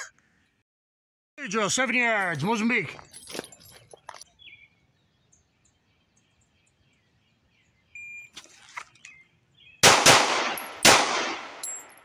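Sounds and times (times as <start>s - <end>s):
faint bird chirps: 4.0s - 9.8s
electronic start beep: 8.0s - 8.3s.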